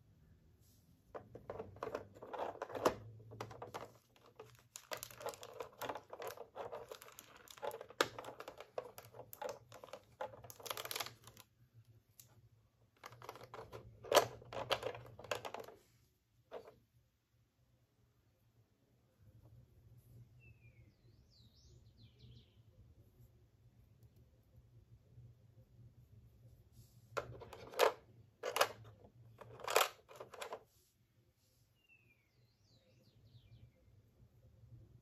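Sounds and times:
plastic tray crinkling and clicking: 1.2 - 11.5, 13.0 - 15.8, 27.2 - 30.6.

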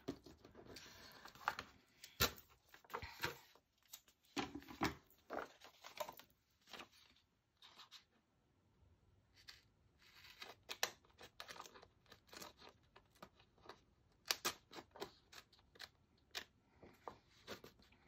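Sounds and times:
small scissors snipping paper: 9.3 - 16.6.

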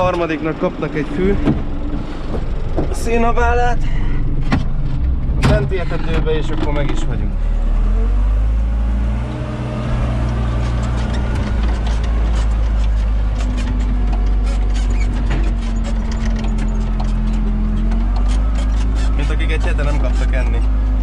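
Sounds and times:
diesel engine running: 0.0 - 21.0
clicks and rattles: 10.2 - 20.8.

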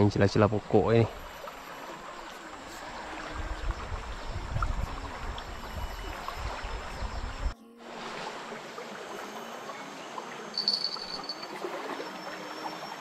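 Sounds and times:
fast-flowing river rushing: 10.5 - 12.7.

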